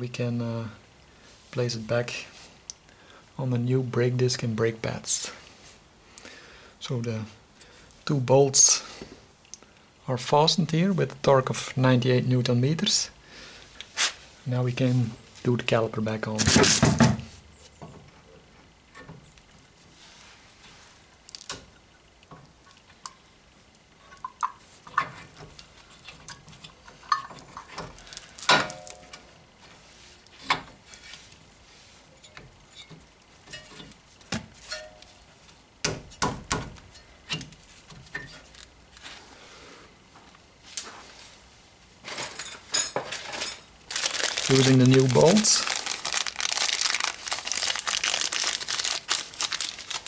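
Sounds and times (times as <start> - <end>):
metal clinks and scrapes: 34.6 - 35.2.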